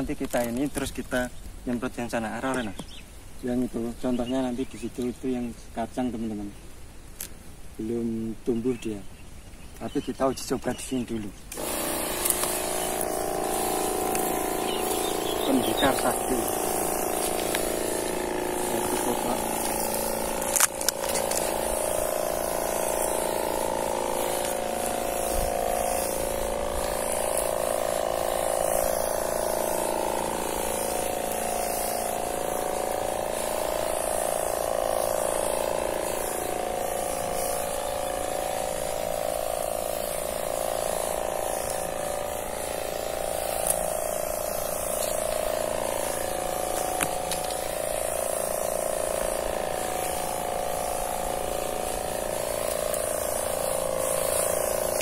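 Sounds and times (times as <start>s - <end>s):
liquid spray hiss: 0.0s - 55.0s
sprayer pump buzzing hum: 11.4s - 55.0s.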